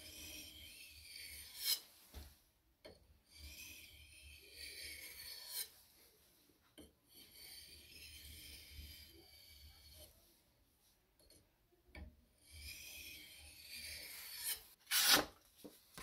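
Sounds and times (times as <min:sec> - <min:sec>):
knife scraping on whetstone: 0:00.0 - 0:01.9, 0:03.3 - 0:05.8, 0:07.1 - 0:10.2, 0:12.5 - 0:15.3.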